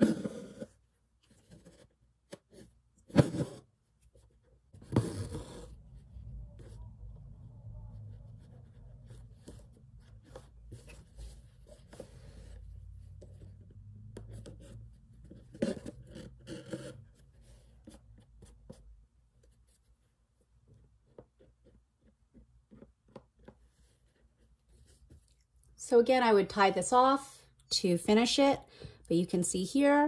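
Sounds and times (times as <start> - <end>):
faint low hum: 0.1 - 25.9.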